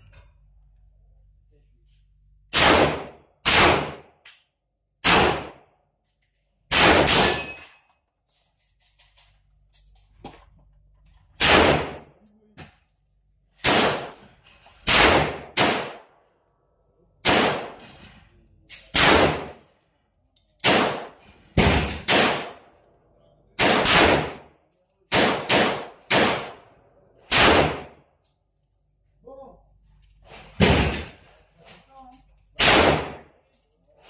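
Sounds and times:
pistol shots: 0:02.5 - 0:04.1, 0:05.0 - 0:05.6, 0:06.7 - 0:07.5, 0:11.4 - 0:12.1, 0:13.6 - 0:14.2, 0:14.8 - 0:16.1, 0:17.2 - 0:17.8, 0:18.9 - 0:19.6, 0:20.6 - 0:22.6, 0:23.6 - 0:24.5, 0:25.1 - 0:26.6, 0:27.3 - 0:28.0, 0:32.6 - 0:33.3.

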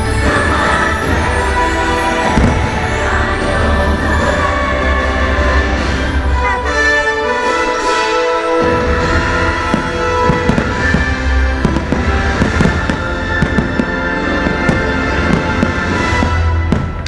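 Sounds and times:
fireworks bangs and pops: 0:00.0 - 0:04.7, 0:08.6 - 0:17.0.

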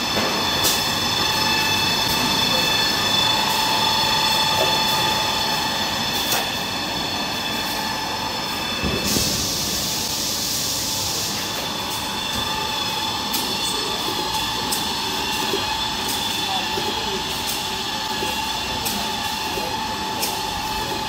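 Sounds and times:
machinery din with whining: 0:00.0 - 0:21.0
hiss: 0:08.8 - 0:12.0.

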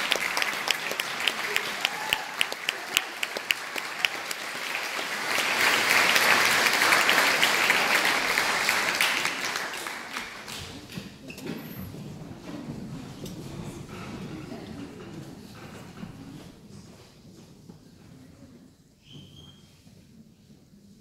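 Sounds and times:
audience applause: 0:00.0 - 0:10.9.

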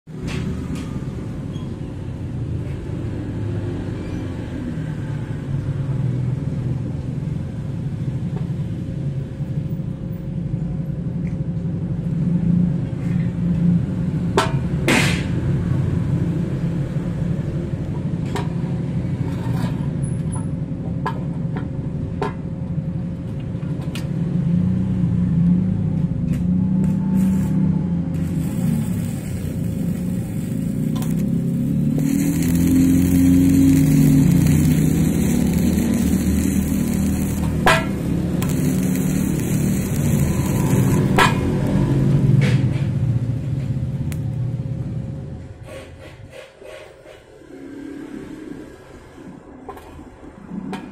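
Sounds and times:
low machinery hum: 0:26.3 - 0:42.2
welding rod crackling hiss: 0:26.8 - 0:41.8.

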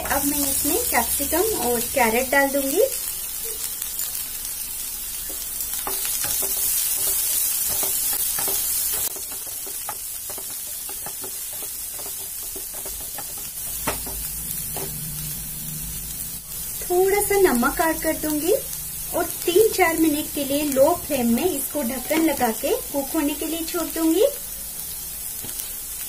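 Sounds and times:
vegetables sizzling in hot oil: 0:00.0 - 0:26.0
wooden spatula scraping a pan: 0:05.2 - 0:15.1.

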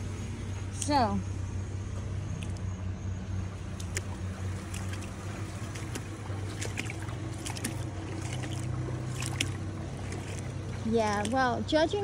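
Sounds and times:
low hum: 0:00.0 - 0:12.0
footsteps wading through water: 0:03.5 - 0:12.0.

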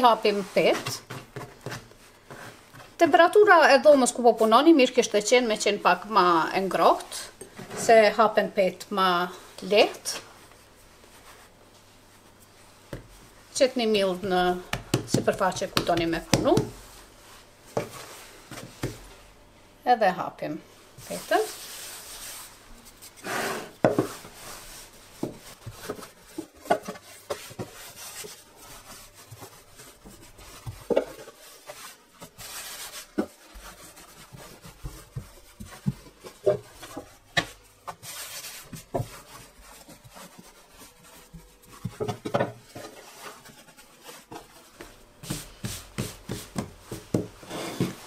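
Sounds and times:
rolling pin rubbing dough: 0:09.7 - 0:19.2, 0:21.0 - 0:48.0
rolling pin knocking board: 0:14.7 - 0:16.8.

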